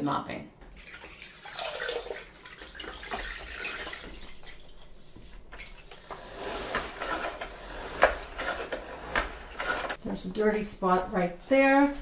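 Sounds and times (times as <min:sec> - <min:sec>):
spin mop wringer spinning: 0:05.9 - 0:10.0.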